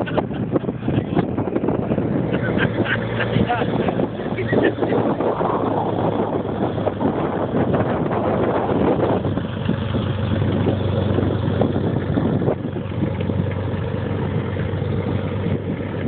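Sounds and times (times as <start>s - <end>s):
propeller plane engine taxiing: 0.0s - 16.0s.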